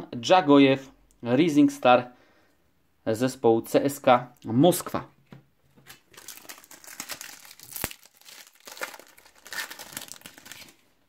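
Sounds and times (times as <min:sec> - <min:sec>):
foil packet crinkling and tearing: 0:05.9 - 0:10.9.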